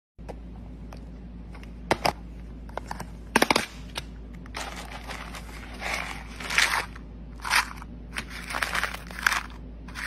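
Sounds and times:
dry kibble rattling in plastic: 4.5s - 10.0s.

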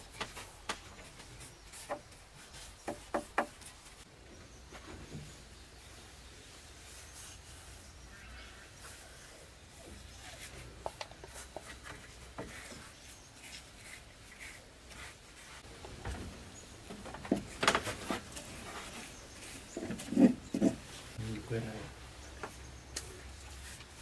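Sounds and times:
paintbrush scraping along wood: 0.1s - 4.0s, 6.4s - 15.7s, 17.4s - 21.2s, 23.2s - 24.0s.

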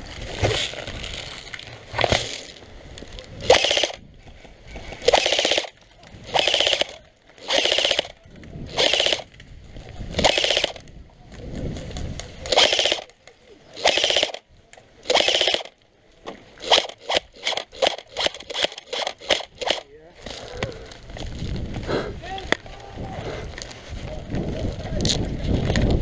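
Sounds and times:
airsoft rifle full-auto bursts: 3.4s - 4.0s, 5.0s - 9.3s, 10.2s - 10.8s, 12.5s - 13.1s, 13.8s - 14.4s, 15.0s - 15.8s, 16.6s - 19.8s.

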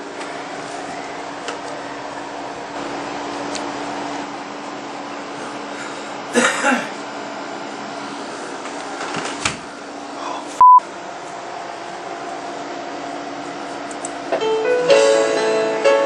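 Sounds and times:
censor bleep: 10.6s - 10.8s.

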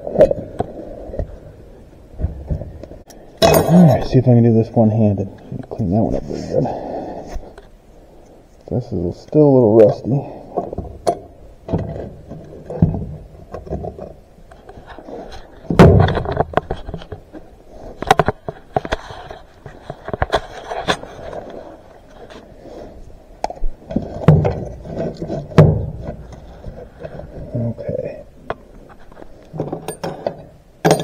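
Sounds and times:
metal tools clinking and scraping: 3.4s - 4.1s, 29.6s - 31.0s.

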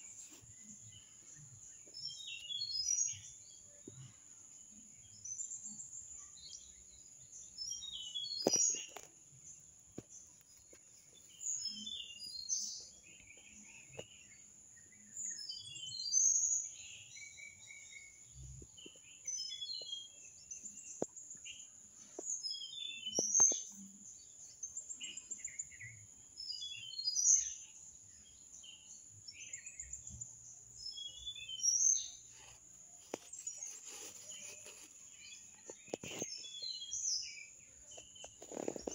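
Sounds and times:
songbirds chirping: 0.0s - 38.9s.

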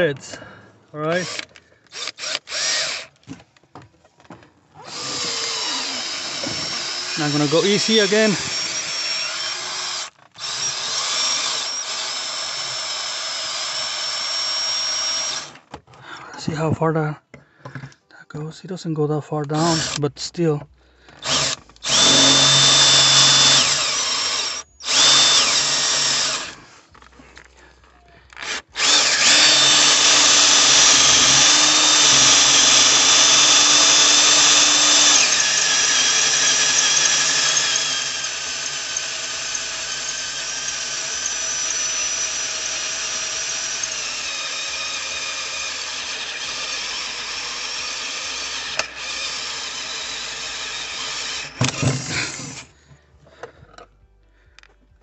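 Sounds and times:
cordless drill boring metal: 1.0s - 3.2s, 4.8s - 15.6s, 19.5s - 20.1s, 21.1s - 27.1s, 28.2s - 52.7s.

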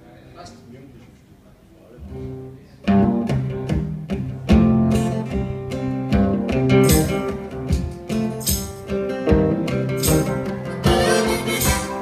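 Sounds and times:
guitars playing blues-rock: 2.1s - 12.0s.

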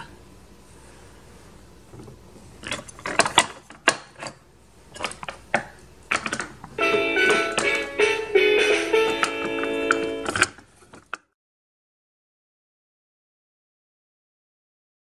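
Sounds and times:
plucked-sounding tune: 6.8s - 10.5s.

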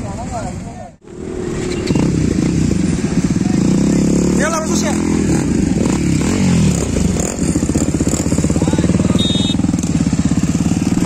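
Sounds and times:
motorcycle engines throbbing: 1.0s - 11.0s
high beep: 9.2s - 9.6s.

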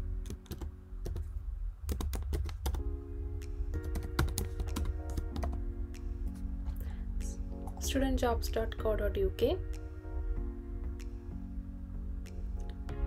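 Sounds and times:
soft background music: 0.0s - 13.0s
computer keyboard typing: 0.2s - 1.2s, 1.9s - 2.9s, 3.8s - 5.6s.

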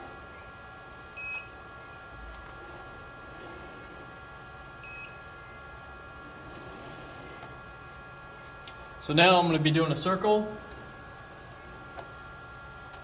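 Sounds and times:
faint machine whine: 0.0s - 13.0s
short electronic beeps: 4.8s - 5.2s.

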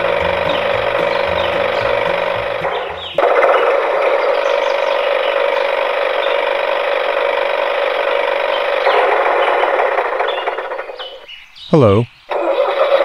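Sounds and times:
toy electric motor whirring: 0.0s - 11.2s.

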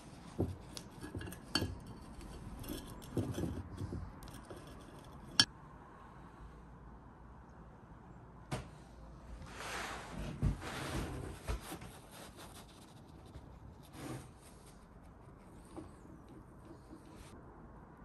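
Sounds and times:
metal parts scraping on wood: 0.0s - 5.5s.

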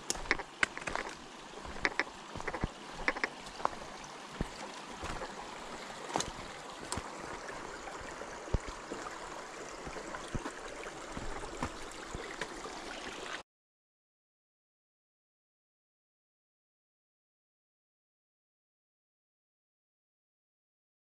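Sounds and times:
creek trickling and gurgling: 0.0s - 13.4s.

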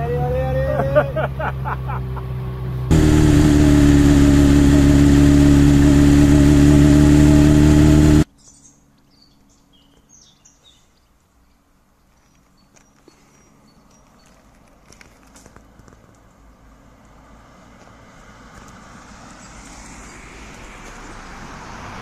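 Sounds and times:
motorcycle engine running: 2.8s - 8.3s
birds chirping: 8.3s - 14.6s.

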